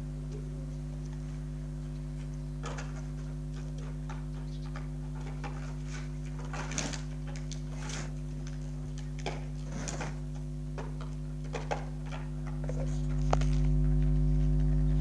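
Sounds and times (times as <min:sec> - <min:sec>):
steady low hum: 0:00.0 - 0:15.0
hand tool scraping paper: 0:05.3 - 0:10.2.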